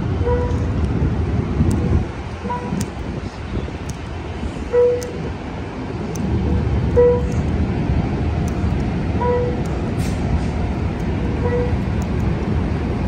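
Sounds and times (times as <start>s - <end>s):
diesel train engine rumbling: 0.0s - 13.0s
short beeps: 4.7s - 5.2s.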